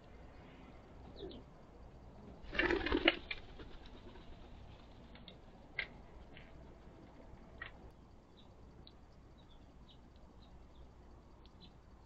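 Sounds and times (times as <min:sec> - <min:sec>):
small birds chipping: 0:00.0 - 0:01.6, 0:07.5 - 0:12.0.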